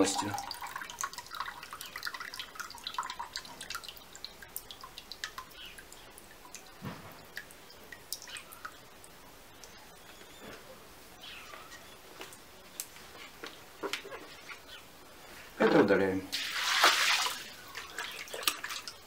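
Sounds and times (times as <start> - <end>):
water dripping into water: 0.0 - 10.1, 16.4 - 19.0.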